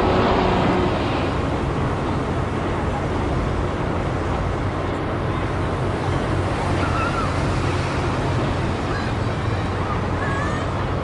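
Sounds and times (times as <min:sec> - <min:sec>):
low hum: 0:00.0 - 0:03.5
road traffic: 0:00.0 - 0:11.0.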